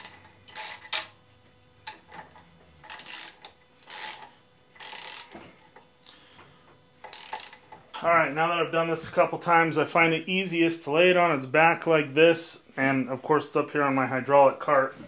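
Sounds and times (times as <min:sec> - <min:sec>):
ratchet wrench clicking: 0:00.0 - 0:01.0, 0:02.8 - 0:05.3, 0:07.0 - 0:07.6.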